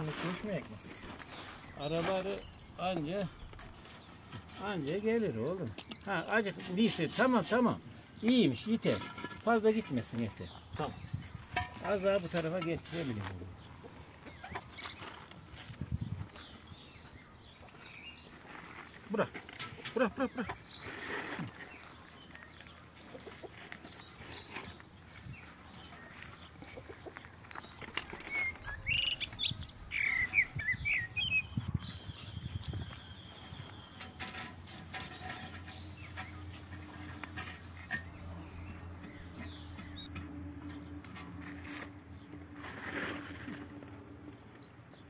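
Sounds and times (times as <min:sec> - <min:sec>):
birds chirping: 0:00.0 - 0:45.0
metal clicks and scrapes: 0:33.8 - 0:43.8.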